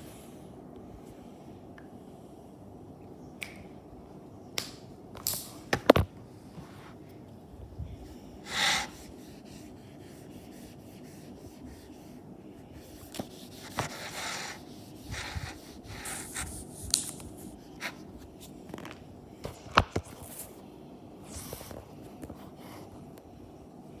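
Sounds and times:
hand rubbing on whiteboard: 0:08.5 - 0:18.0.

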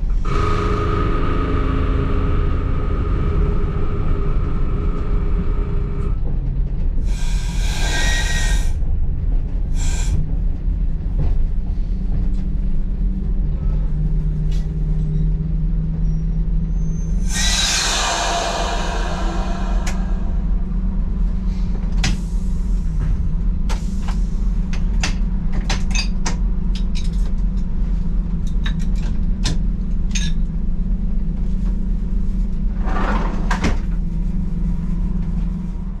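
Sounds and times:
train diesel engines idling: 0:00.0 - 0:10.3, 0:17.1 - 0:24.8
short rush of noise: 0:17.2 - 0:21.2.

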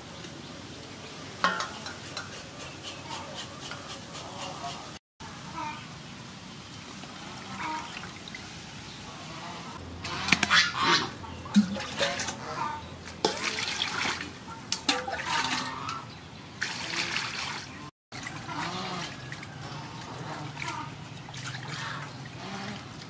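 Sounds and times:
water splashing in metal basin: 0:11.5 - 0:16.0, 0:16.6 - 0:23.0.

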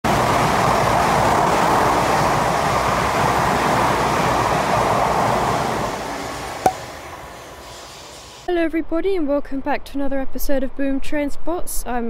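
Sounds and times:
train rolling past: 0:00.1 - 0:08.5.

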